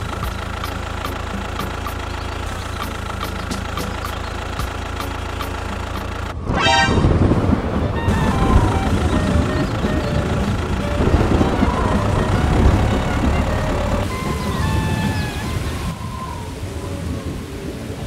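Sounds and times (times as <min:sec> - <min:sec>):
tractor engine running: 0:00.0 - 0:17.8
horn tooting: 0:06.4 - 0:16.0.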